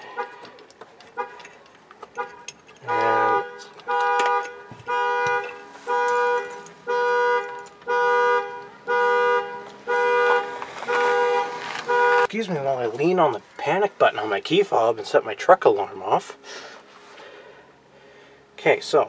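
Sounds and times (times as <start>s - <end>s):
truck horn blasts: 0.0s - 0.5s, 1.1s - 1.4s, 2.2s - 12.3s.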